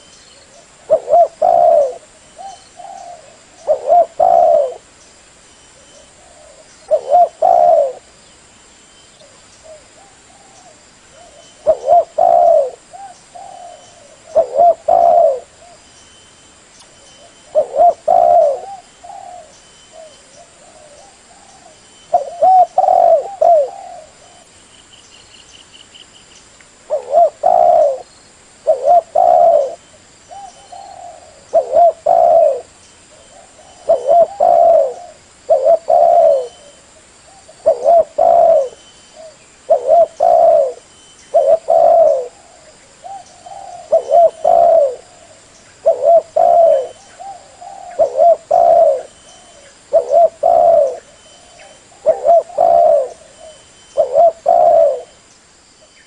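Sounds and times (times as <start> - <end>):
dove cooing: 0.0 - 4.9, 5.8 - 8.1, 9.2 - 15.8, 17.2 - 24.5, 26.9 - 55.2.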